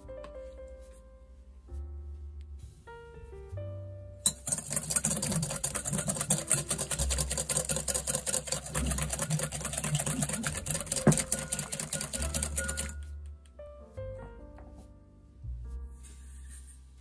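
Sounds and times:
whisk beating in glass bowl: 4.3 - 13.1.

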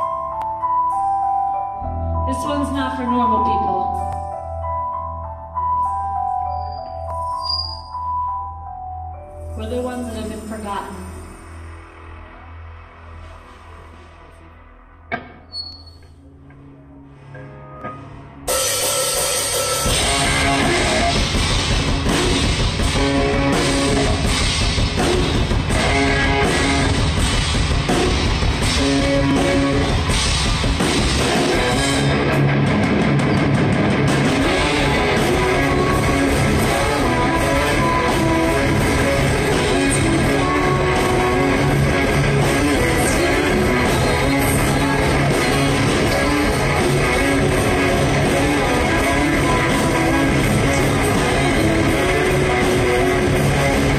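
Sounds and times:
electric guitars: 9.4 - 53.9
drum kit: 18.5 - 53.9.

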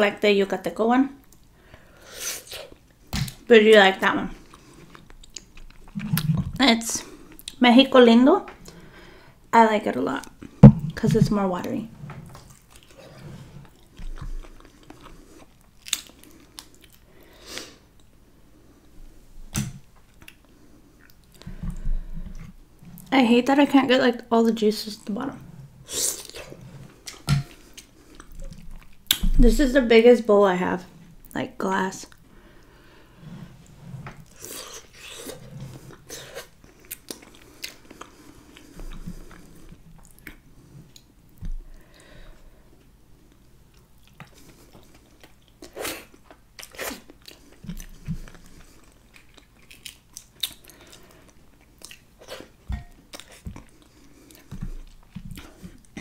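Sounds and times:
chewing and mouth sounds: 4.3 - 7.6, 12.3 - 17.1, 20.1 - 23.1, 25.9 - 29.3, 34.2 - 41.8, 43.3 - 56.0
wet squelches and clicks: 4.5 - 6.6.

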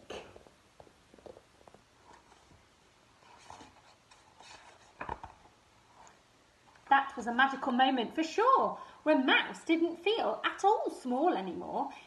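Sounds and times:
paper pages rustling: 1.1 - 2.6, 3.2 - 6.2.

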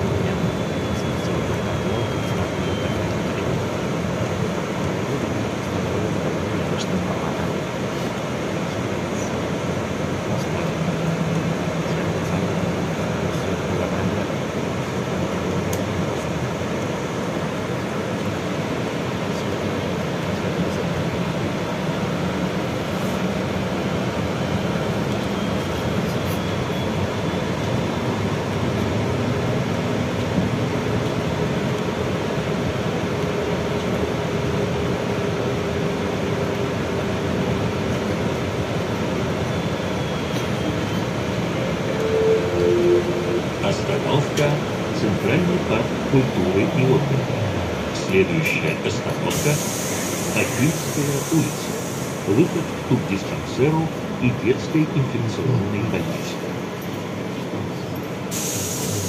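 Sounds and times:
trolleybus cabin rumble: 0.0 - 59.0
faint steady whine: 38.9 - 47.1.

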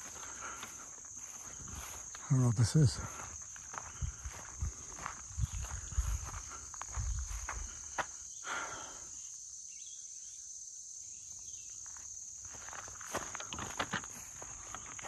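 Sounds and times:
footsteps crunching on gravel: 0.0 - 8.2, 11.8 - 15.0
insects droning: 0.0 - 15.0.

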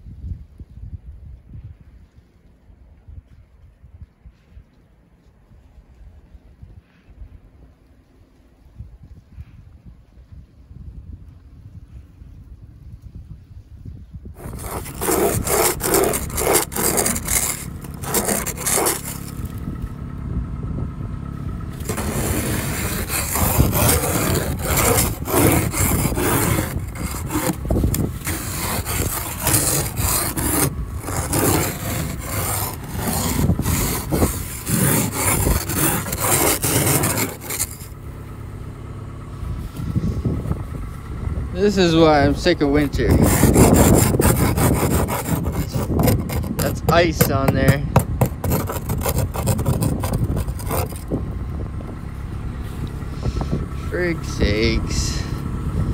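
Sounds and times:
ice scraper scraping car window: 14.4 - 19.8, 21.7 - 38.0, 42.0 - 51.2.

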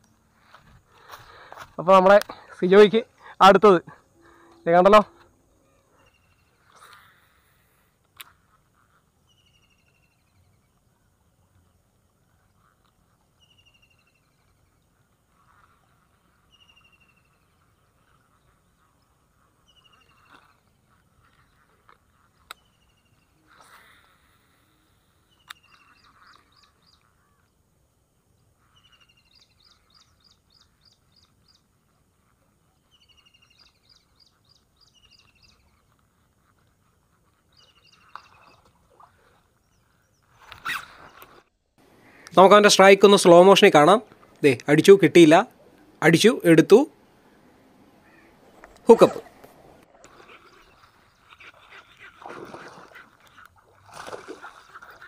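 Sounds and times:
rapid high bird trills: 25.3 - 27.5, 44.8 - 52.2.

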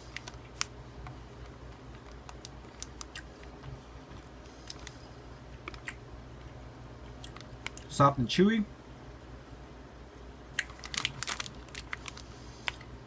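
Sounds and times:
faint low hum: 0.0 - 13.0
person chewing: 1.7 - 3.6, 4.5 - 6.0.

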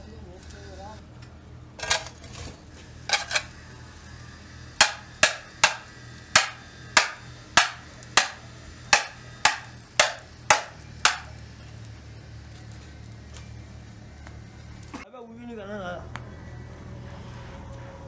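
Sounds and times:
hammer striking metal ring: 4.8 - 8.4, 9.0 - 11.3.

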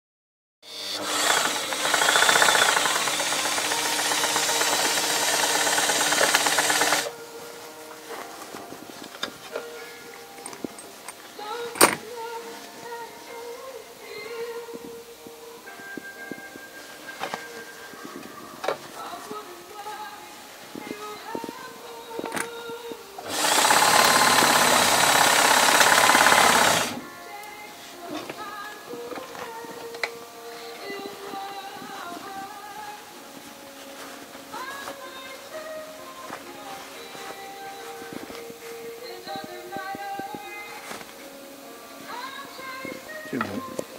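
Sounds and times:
sewing machine running: 0.7 - 7.1, 23.2 - 27.0.

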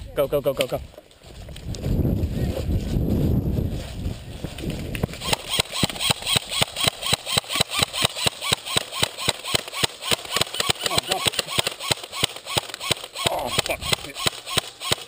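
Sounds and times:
airsoft guns firing rapidly: 5.2 - 15.0.

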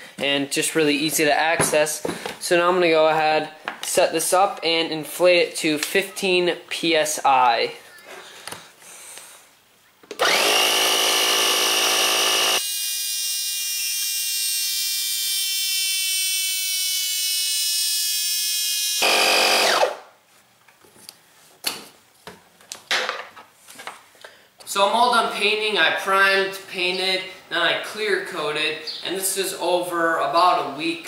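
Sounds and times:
air compressor motor running: 10.2 - 12.6, 19.0 - 20.0.

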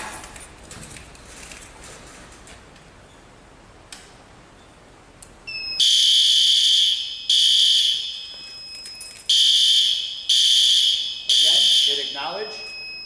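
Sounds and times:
alarm horn blaring: 5.8 - 8.4, 9.3 - 12.7.

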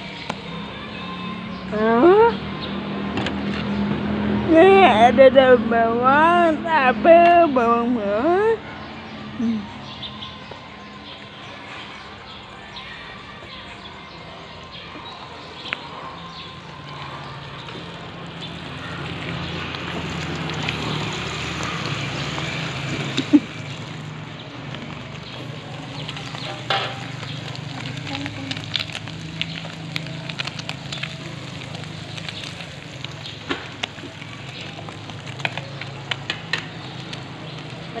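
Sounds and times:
food sizzling in oil: 18.3 - 24.2, 24.8 - 37.9.

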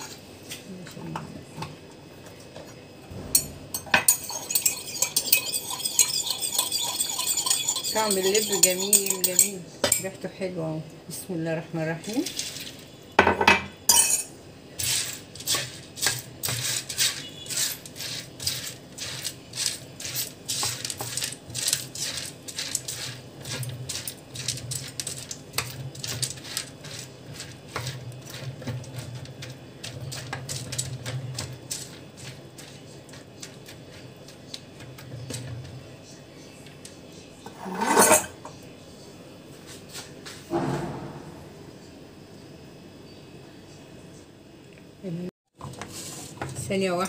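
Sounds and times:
spatula stirring seeds: 4.0 - 9.6, 14.7 - 37.1, 45.5 - 47.0
seeds scraping against metal pan: 4.1 - 9.6, 14.8 - 35.7.

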